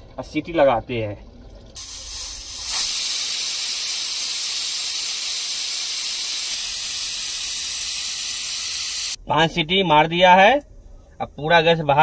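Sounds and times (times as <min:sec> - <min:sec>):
pressure cooker venting steam: 0:01.8 - 0:09.2.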